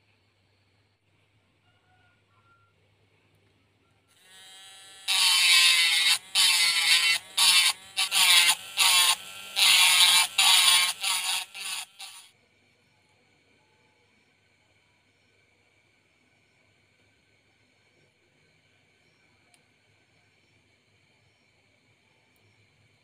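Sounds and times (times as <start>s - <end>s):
rotary tool grinding plastic: 4.2s - 12.3s.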